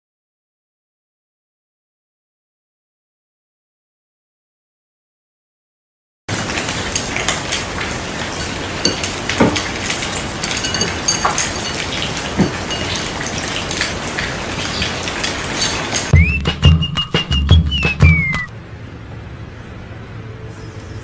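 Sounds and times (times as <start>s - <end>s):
metal bowls clinking: 6.4s - 16.1s.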